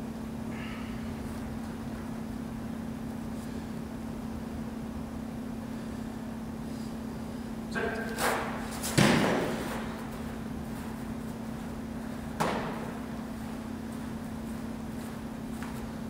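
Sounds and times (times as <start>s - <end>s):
steady hum: 0.0s - 16.0s
football smacking into hands: 12.4s - 12.8s.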